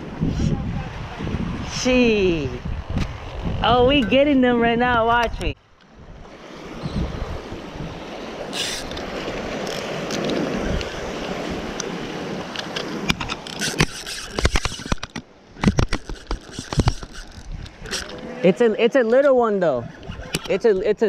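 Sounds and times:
wind buffeting microphone: 0:00.0 - 0:18.4, 0:19.8 - 0:21.0
water noise: 0:00.0 - 0:21.0
fishing reel clicks and knocks: 0:12.6 - 0:18.2.

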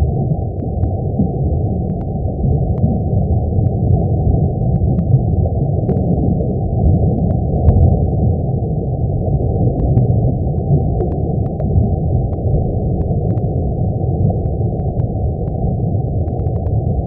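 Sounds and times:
faint ticks: 0:00.5 - 0:03.0, 0:04.6 - 0:05.2, 0:05.8 - 0:06.1, 0:06.8 - 0:07.9, 0:09.7 - 0:17.0.

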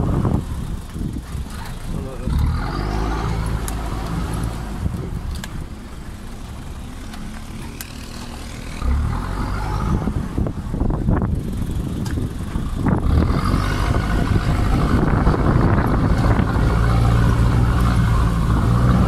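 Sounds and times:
diesel engine revving: 0:00.0 - 0:19.0.

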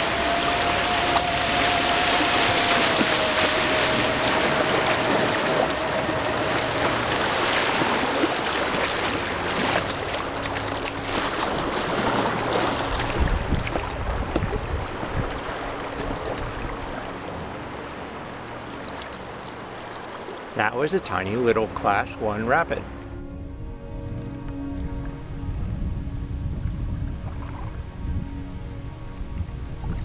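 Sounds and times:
whitewater rushing around canoe: 0:00.0 - 0:23.1.

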